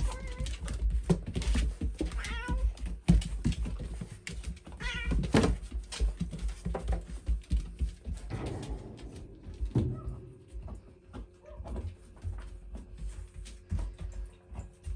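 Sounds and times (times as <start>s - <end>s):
paws scrabbling on floor: 0.0s - 14.9s.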